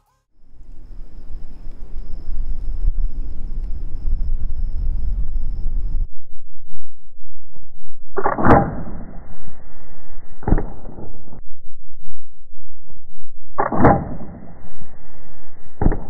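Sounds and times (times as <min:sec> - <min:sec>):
slow-motion bow shot whoosh: 0:07.7 - 0:11.4, 0:13.1 - 0:16.0
sharp thud: 0:10.4 - 0:11.1, 0:15.8 - 0:16.0.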